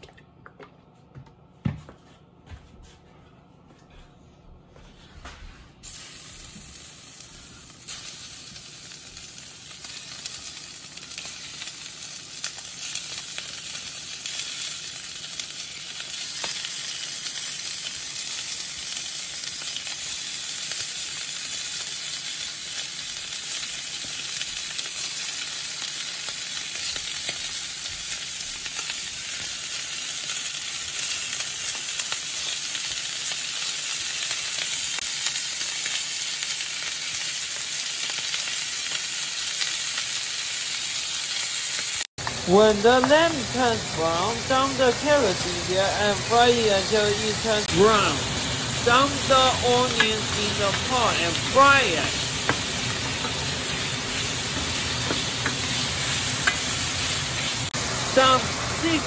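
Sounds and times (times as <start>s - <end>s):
meat sizzling in hot oil: 5.8s - 59.0s.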